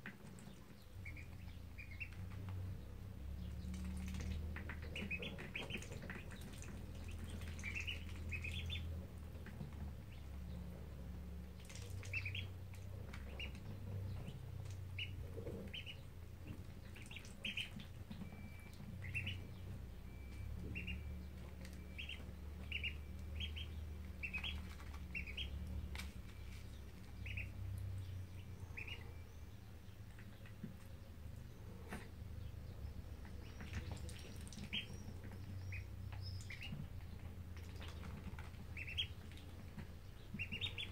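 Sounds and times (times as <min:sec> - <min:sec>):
ducklings peeping: 0:00.0 - 0:40.9.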